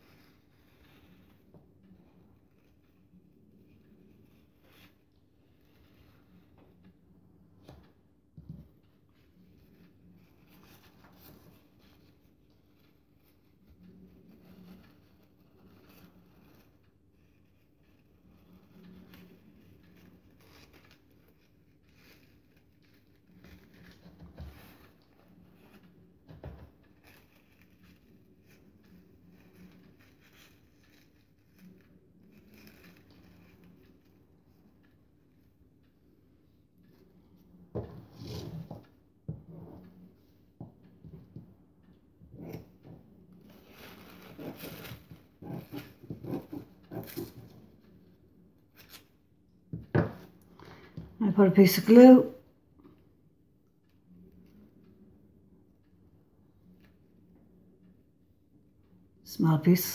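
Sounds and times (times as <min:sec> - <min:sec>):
crepe paper rustling: 0:08.8 - 0:35.4, 0:43.3 - 0:48.1.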